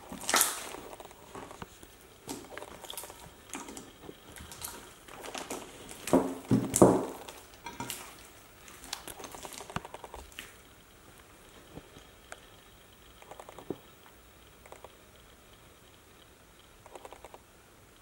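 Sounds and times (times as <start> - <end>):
slime squelching and popping: 0.0 - 10.6.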